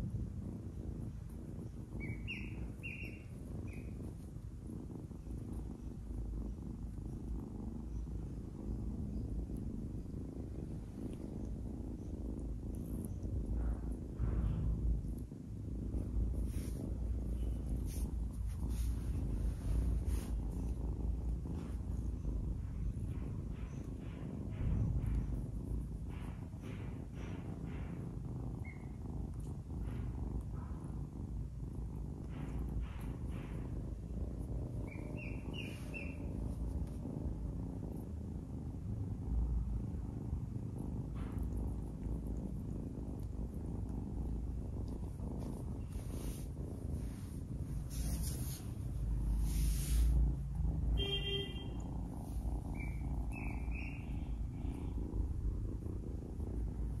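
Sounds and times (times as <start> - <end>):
kitten purring: 0.0 - 57.0.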